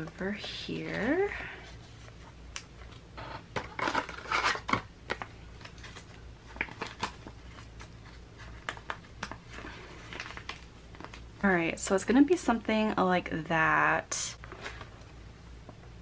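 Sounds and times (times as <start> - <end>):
plastic binder pages rustling: 0.0 - 11.4.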